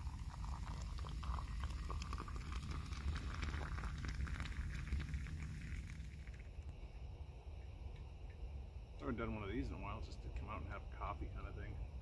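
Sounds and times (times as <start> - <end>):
coffee pouring into mug: 0.0 - 6.7.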